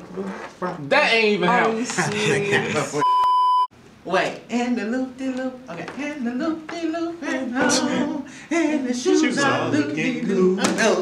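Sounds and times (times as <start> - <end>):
men singing a cappella: 1.6 - 3.0, 4.5 - 11.0.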